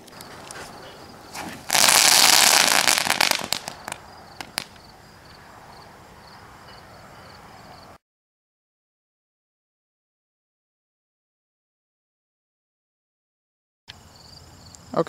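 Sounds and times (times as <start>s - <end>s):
firework crackling: 0.0s - 4.9s.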